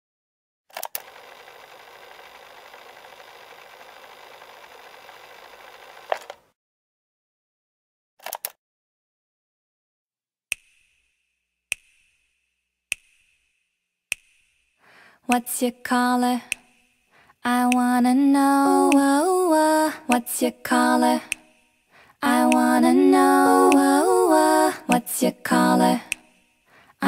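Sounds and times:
small motor whirring: 0.9s - 6.4s.

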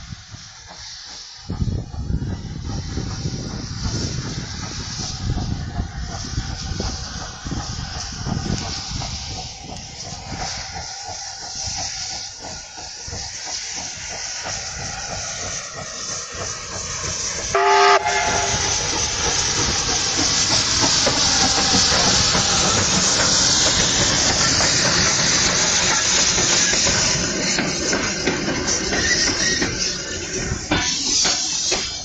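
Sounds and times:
rush of steam and running gear: 0.0s - 32.0s
steam locomotive chuffing: 0.0s - 32.0s
train whistle blast: 17.5s - 18.9s.

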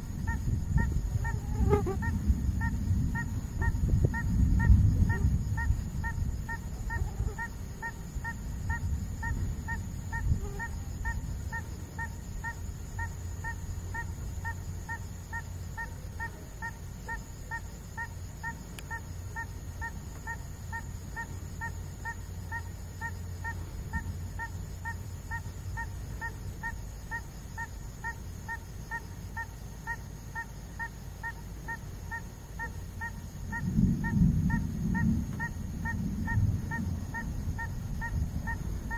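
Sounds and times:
thunder rumbling: 0.0s - 7.0s, 33.4s - 38.9s.

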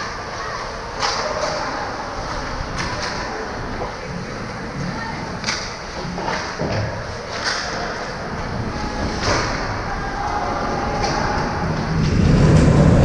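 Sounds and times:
distant voices: 0.0s - 13.0s
sharp clacks of sticks and puck: 0.9s - 1.8s, 2.7s - 4.0s, 5.4s - 8.2s.

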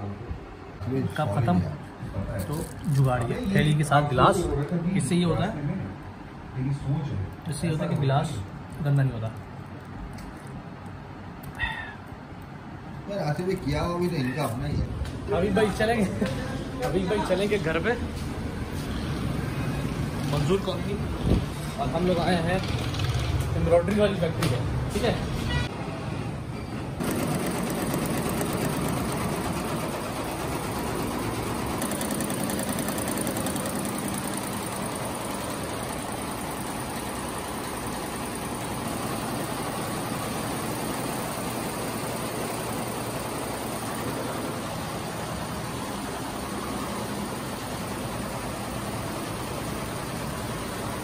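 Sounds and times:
embroidery machines clattering: 27.0s - 43.9s.

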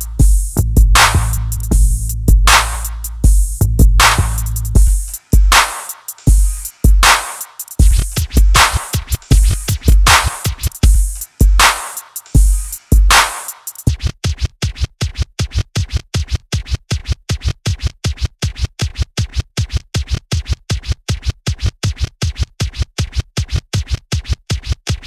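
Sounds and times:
electronic music: 0.0s - 14.0s.

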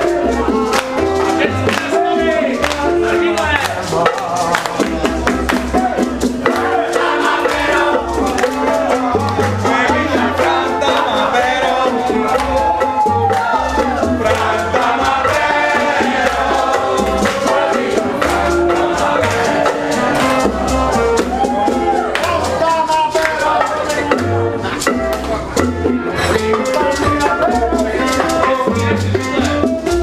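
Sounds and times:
acoustic guitar: 0.0s - 30.0s
bongos: 0.0s - 30.0s
maracas shaken: 0.0s - 30.0s
person singing: 5.8s - 24.8s, 26.1s - 30.0s.

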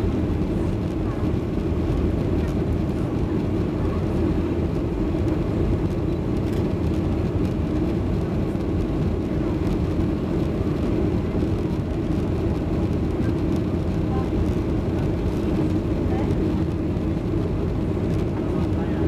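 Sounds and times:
airplane cabin engine rumble: 0.0s - 19.0s.

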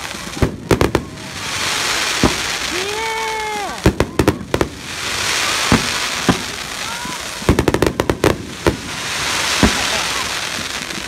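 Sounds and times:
firework bangs: 0.0s - 11.0s
fireworks crackling hiss: 0.0s - 11.0s
rapid firework pops: 0.0s - 11.0s.

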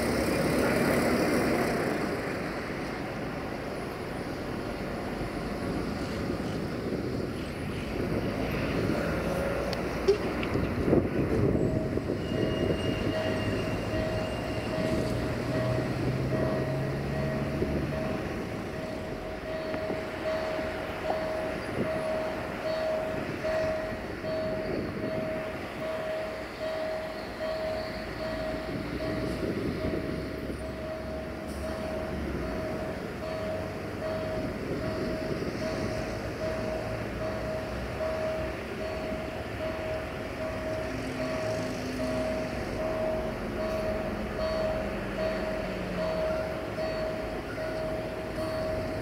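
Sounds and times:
diesel locomotive rumble: 0.0s - 49.0s
level-crossing warning bell tone: 0.0s - 49.0s.

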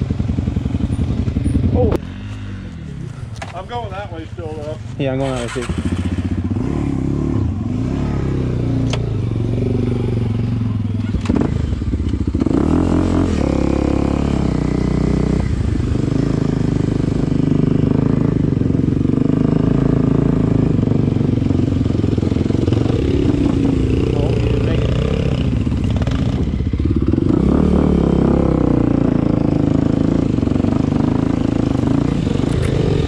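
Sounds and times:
dirt bike engine revving: 5.1s - 10.4s, 11.0s - 33.0s.

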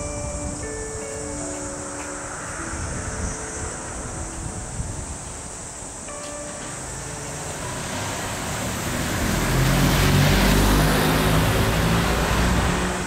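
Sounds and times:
vehicle passing by: 6.5s - 13.0s.

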